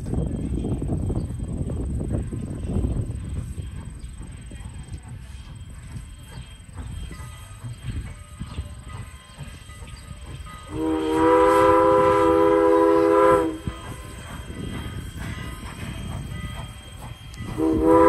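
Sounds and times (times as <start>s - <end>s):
low train rumble with knocks: 0.0s - 18.0s
steam locomotive whistle: 10.6s - 18.0s.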